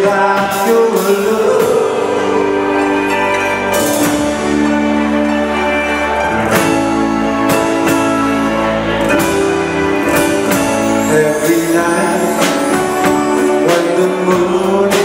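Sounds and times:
live band playing: 0.0 - 15.0
drum and cymbal hits: 9.1 - 15.0.

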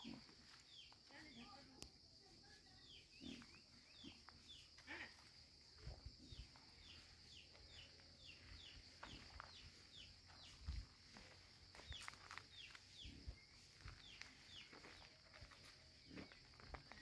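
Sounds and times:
footsteps on dirt path: 0.0 - 1.6, 3.3 - 17.0
faint bird chirping: 0.0 - 17.0.

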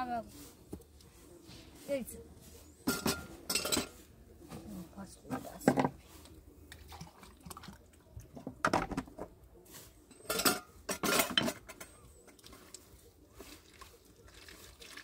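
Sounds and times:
metal pots and utensils clattering: 2.8 - 6.1, 10.0 - 12.7.

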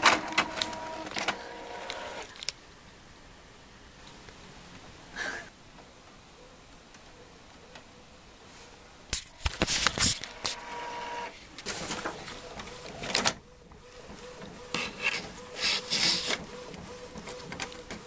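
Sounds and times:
inkjet printer printing: 0.0 - 2.4, 9.6 - 18.0
cat rubbing against printer: 9.7 - 18.0.

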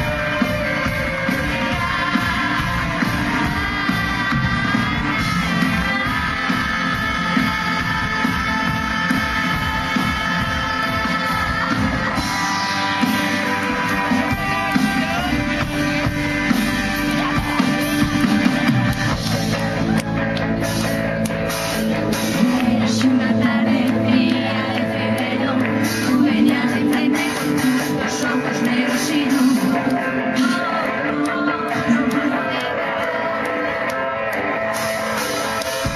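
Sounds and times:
woman singing: 0.0 - 15.7, 22.3 - 33.9
pop-rock band playing: 0.0 - 35.9.

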